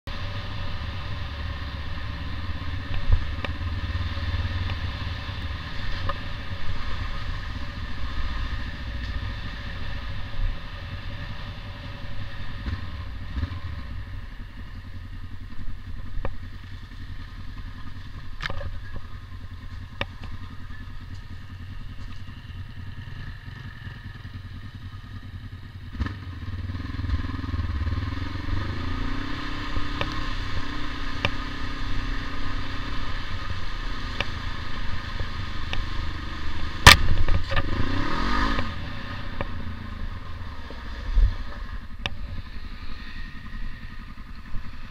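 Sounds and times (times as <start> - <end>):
motorcycle engine running: 0.1 - 44.9
bike rattling over rough ground: 15.4 - 24.8.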